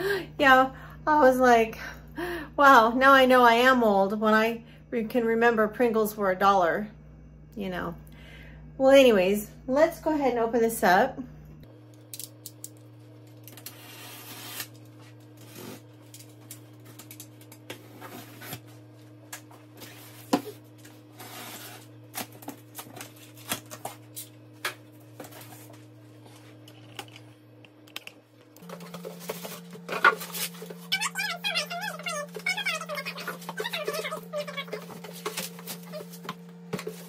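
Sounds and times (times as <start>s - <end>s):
box cutter slicing packing tape: 13.6s - 14.8s.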